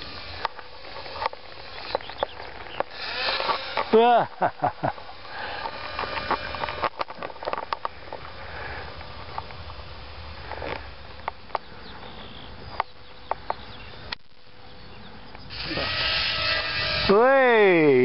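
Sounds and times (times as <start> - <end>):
faint electric motor whine: 0.0 - 18.0
sharp clicks: 0.1 - 4.0.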